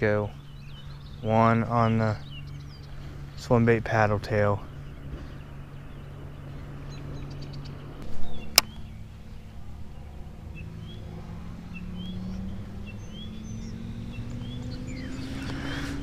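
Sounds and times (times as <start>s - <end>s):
sharp click: 8.5s - 8.8s.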